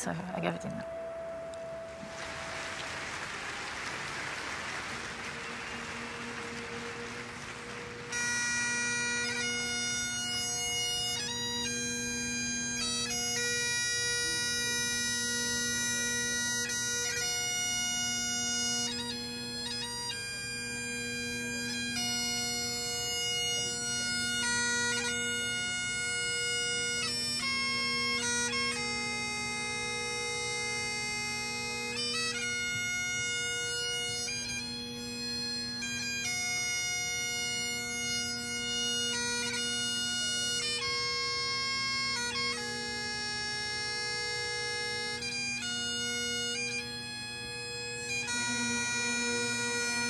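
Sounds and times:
bagpipe chanter playing slow tune: 0.0 - 50.0
bagpipe drones: 0.0 - 50.0
steady hiss: 1.0 - 8.2.

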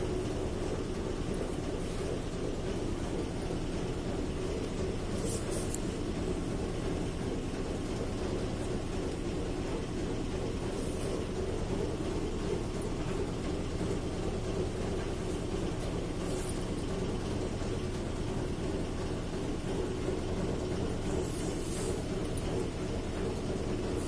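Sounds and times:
low mechanical hum: 0.0 - 24.0
faint rustles: 5.1 - 6.0.

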